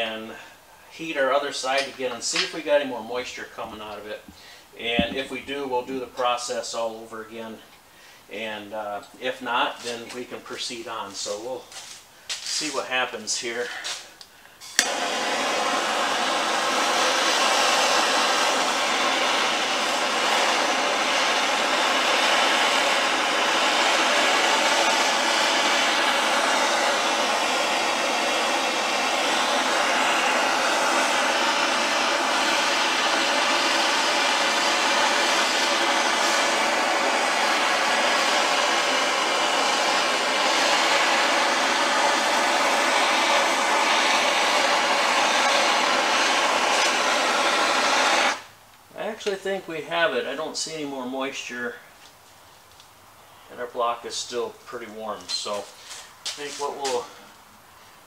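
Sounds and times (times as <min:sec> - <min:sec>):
gas torch flame hissing: 0:00.0 - 0:07.1, 0:08.0 - 0:49.5, 0:53.5 - 0:57.2
gas torch lighting pop: 0:01.7 - 0:02.6, 0:03.6 - 0:05.6, 0:13.8 - 0:48.5, 0:55.2 - 0:57.0.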